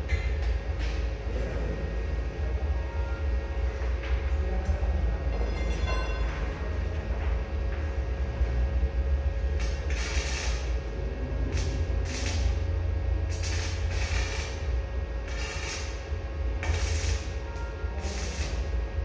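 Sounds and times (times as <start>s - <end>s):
welding arc crackling: 9.4s - 19.0s.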